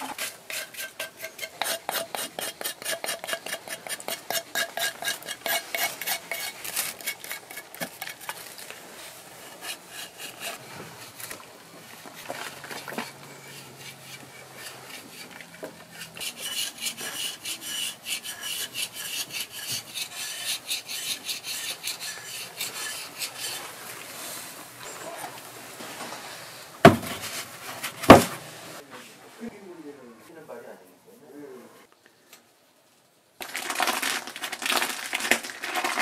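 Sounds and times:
hand tool scraping plaster: 0.0s - 24.3s
sharp knocks: 26.8s - 27.2s.

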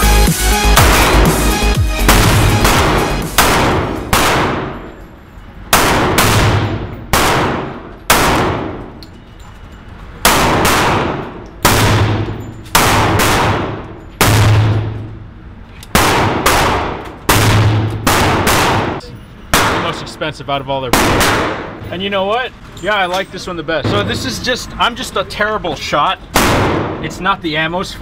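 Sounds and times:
pistol shots echoing: 2.1s - 5.0s, 5.7s - 9.0s, 10.2s - 15.0s, 15.9s - 20.2s, 20.9s - 21.8s, 26.3s - 27.2s.

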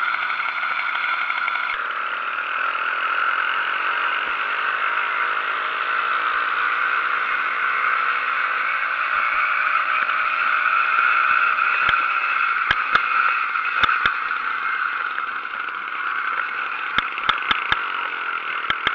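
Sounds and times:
two-stroke engine droning: 0.0s - 18.9s
sharp clicks or rattles: 10.9s - 18.9s.

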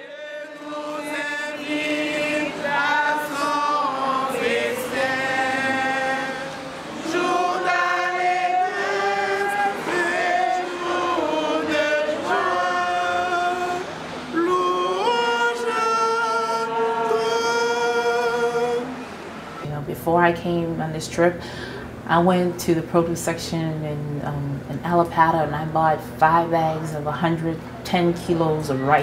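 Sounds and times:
choir singing long notes: 0.0s - 19.6s.

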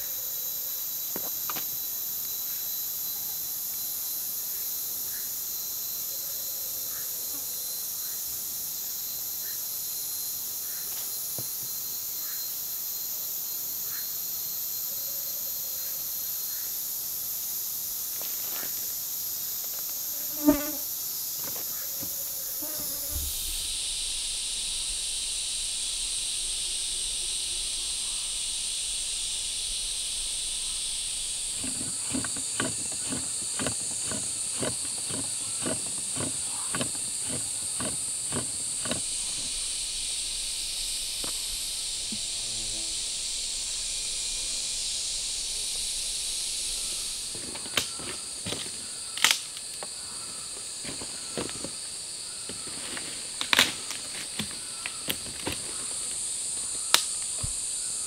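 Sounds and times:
insects droning: 0.0s - 58.0s
sharp knocks and clicks: 31.6s - 39.1s
regular knocks: 31.6s - 39.5s.

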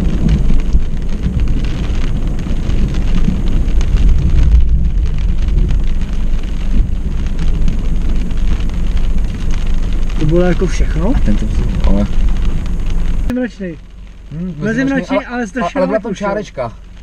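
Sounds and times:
thunder rumbling: 0.0s - 13.3s
rain pattering on windshield: 0.0s - 17.0s.

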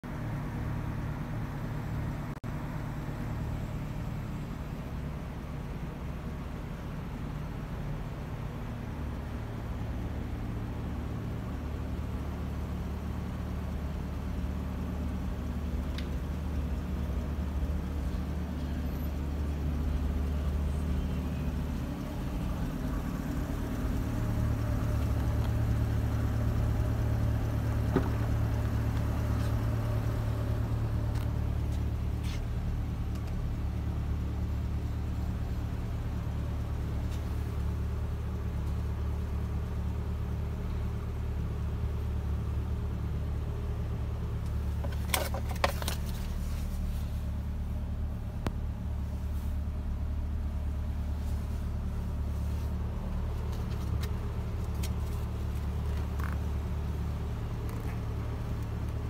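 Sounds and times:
car engine idling: 0.0s - 59.0s.

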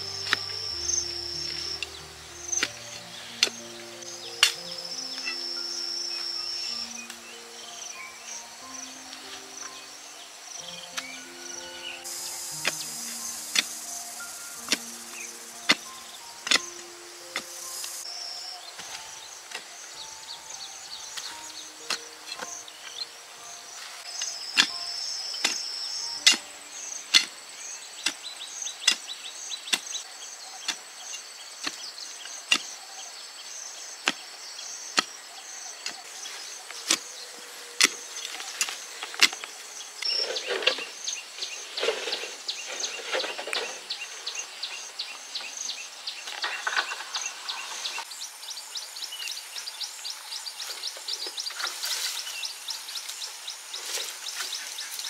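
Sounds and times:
tool striking bamboo: 0.0s - 5.3s, 12.5s - 18.0s, 24.2s - 26.5s, 27.1s - 27.4s, 28.0s - 29.1s, 29.7s - 30.0s, 30.6s - 32.7s, 37.8s - 40.1s
high insect trill: 0.0s - 55.0s
rustling and scraping: 35.9s - 44.5s, 46.2s - 48.1s, 50.6s - 53.2s, 53.8s - 55.0s.

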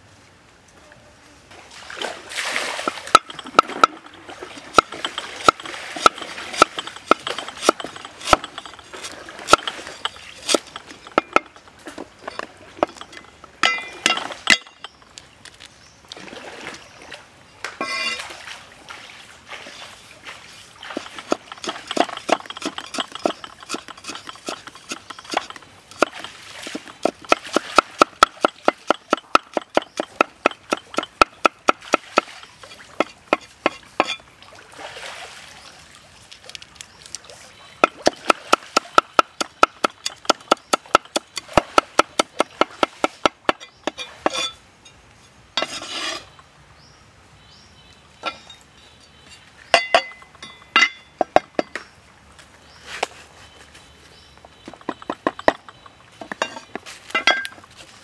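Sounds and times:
cleaver chopping on wooden block: 21.2s - 32.4s, 37.8s - 44.0s.

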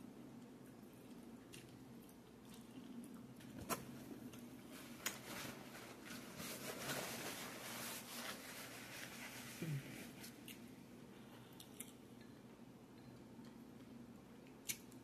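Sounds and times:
quiet chewing: 0.3s - 5.2s, 10.2s - 15.0s
paper napkin rustling: 4.7s - 10.4s.

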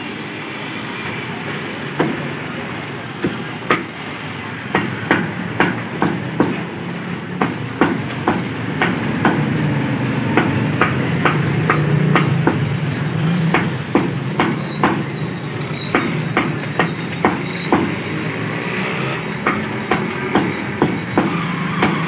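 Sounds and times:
cleaver chopping on wooden block: 19.4s - 22.0s.

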